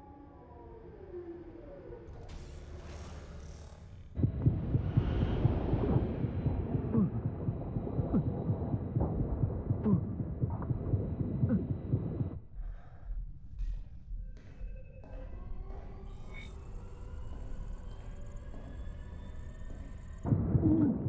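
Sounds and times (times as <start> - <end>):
underwater low rumble: 4.2 - 12.4.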